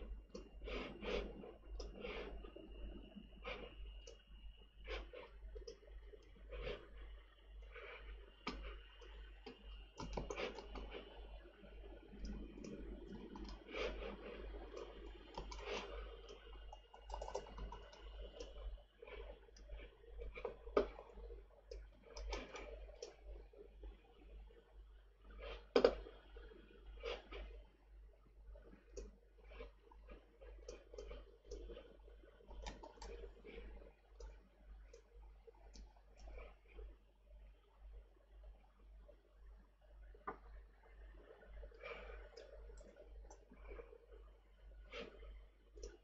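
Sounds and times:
faint high-pitched whine: 0:00.0 - 0:46.0
keyboard and mouse clicking: 0:01.8 - 0:02.3, 0:08.4 - 0:11.0, 0:12.1 - 0:18.6, 0:20.3 - 0:23.2, 0:25.7 - 0:26.0, 0:32.5 - 0:33.6.

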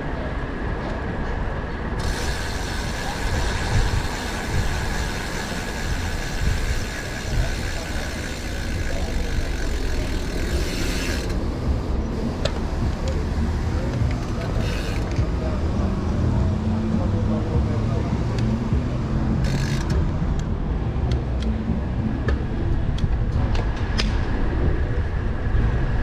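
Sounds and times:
wind buffeting microphone: 0:00.6 - 0:08.5
bicycle freewheel ticking: 0:02.0 - 0:11.6, 0:14.1 - 0:15.1, 0:19.4 - 0:20.0.

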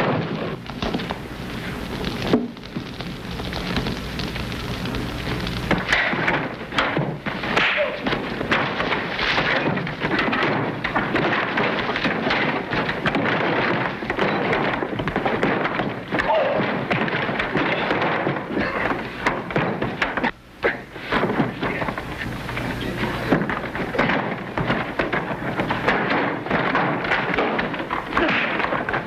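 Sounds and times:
crackling rush of noise: 0:00.0 - 0:29.0
scuffling: 0:00.0 - 0:29.0
thuds of blows: 0:00.0 - 0:29.0
short grunts: 0:18.5 - 0:19.1.

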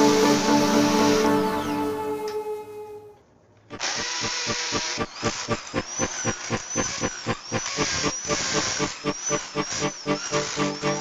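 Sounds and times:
electric drill boring into concrete: 0:03.7 - 0:11.0.

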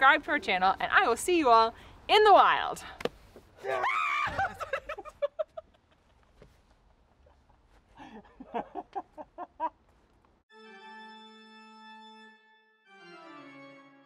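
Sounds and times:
woman laughing: 0:04.2 - 0:06.3, 0:07.2 - 0:09.8
held music chords: 0:10.5 - 0:14.0.

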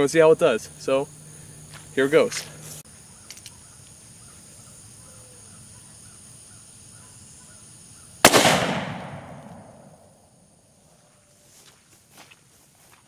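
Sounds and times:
revolver gunshot with echo: 0:08.2 - 0:10.0.

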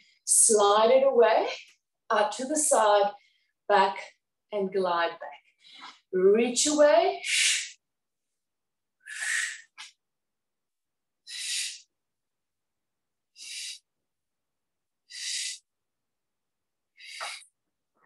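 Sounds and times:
woman breathing hard: 0:09.0 - 0:09.8, 0:11.3 - 0:11.9, 0:13.4 - 0:13.8, 0:15.1 - 0:15.7.

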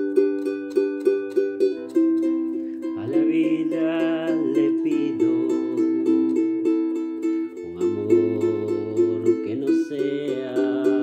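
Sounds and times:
ukulele strumming: 0:00.0 - 0:11.0
man singing: 0:02.8 - 0:11.0.

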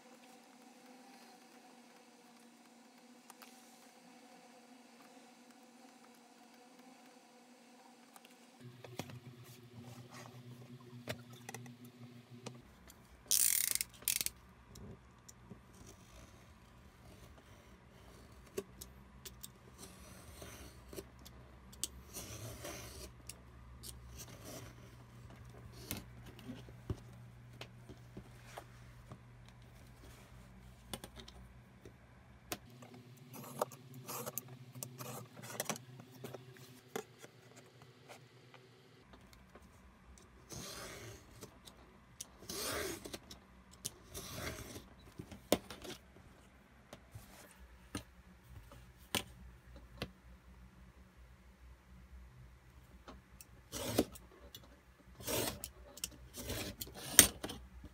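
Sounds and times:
metal ruler clicks and rattles: 0:13.3 - 0:14.4.

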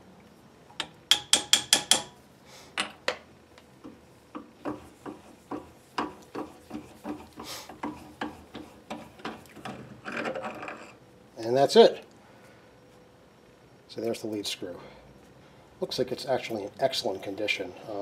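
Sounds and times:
hammer tapping metal: 0:00.8 - 0:02.2.

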